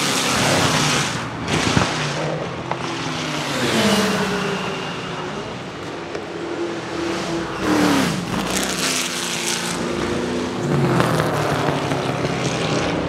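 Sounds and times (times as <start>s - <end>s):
racing engine revving: 0.0s - 13.0s.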